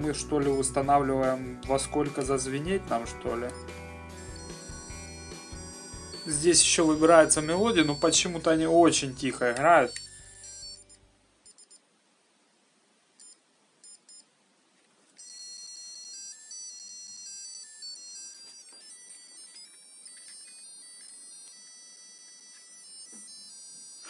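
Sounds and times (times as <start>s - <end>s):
electronic alarm melody: 1.7s - 11.7s, 15.2s - 24.0s
alarm clock beeps: 2.2s - 11.8s, 15.2s - 24.0s.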